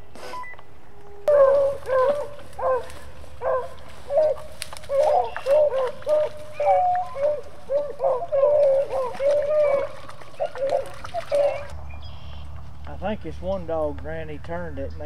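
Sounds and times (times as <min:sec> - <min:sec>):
dogs baying and yelping: 0:00.9 - 0:11.8.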